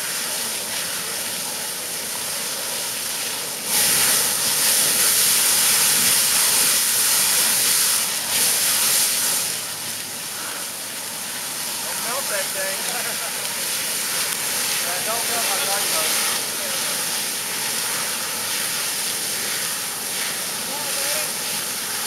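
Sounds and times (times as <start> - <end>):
fire extinguisher hissing: 3.5 - 22.0.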